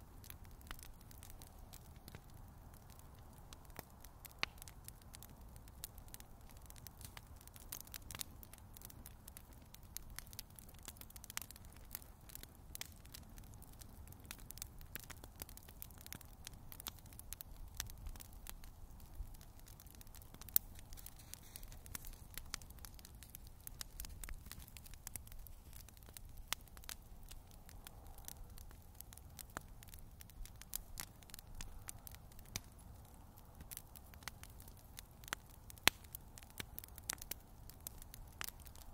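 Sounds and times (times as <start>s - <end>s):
bonfire crackling and popping: 0.0s - 38.9s.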